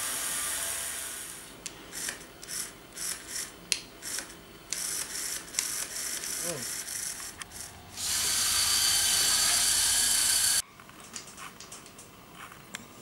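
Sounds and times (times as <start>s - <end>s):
small motor whirring: 2.0s - 10.6s.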